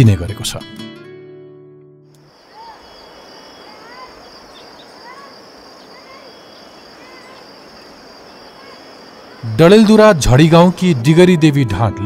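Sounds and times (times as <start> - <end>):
music: 0.0 - 2.2, 10.8 - 12.0
insects trilling: 2.2 - 11.5
birds whistling calls: 2.4 - 9.6.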